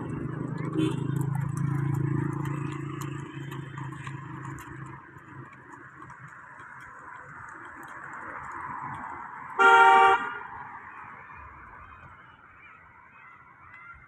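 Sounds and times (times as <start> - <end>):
road noise: 0.0 - 14.0
vehicle engine hum: 0.0 - 14.0.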